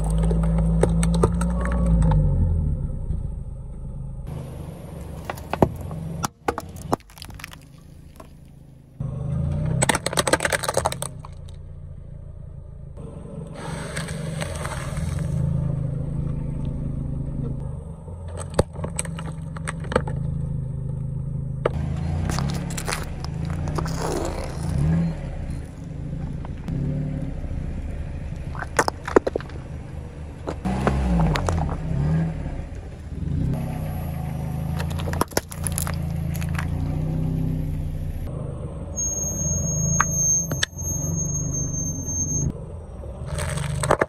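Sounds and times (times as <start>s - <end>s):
car engine hum: 0.0s - 44.0s
sharp cracks and pops: 5.2s - 8.6s, 9.7s - 11.6s, 34.7s - 36.8s, 43.3s - 44.0s.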